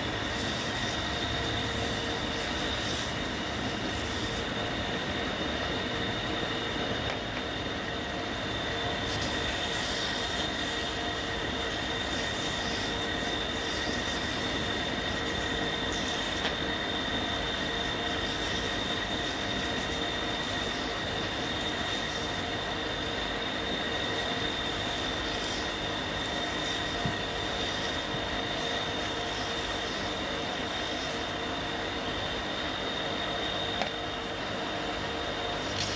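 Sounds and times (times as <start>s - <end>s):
sandpaper hissing on turning bead: 0.0s - 4.8s, 7.9s - 33.8s, 34.5s - 35.9s
bead lathe high-pitched whine: 0.0s - 35.9s.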